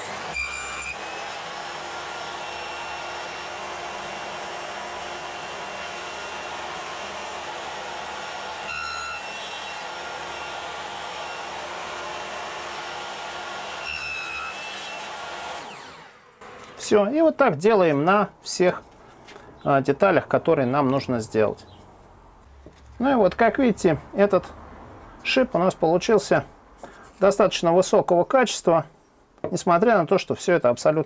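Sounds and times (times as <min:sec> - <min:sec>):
table saw cutting wood: 0:00.0 - 0:17.1.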